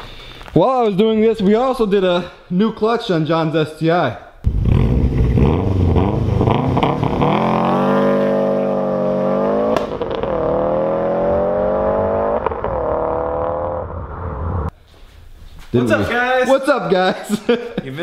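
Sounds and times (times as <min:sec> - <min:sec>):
car engine accelerating hard: 0:04.5 - 0:14.7.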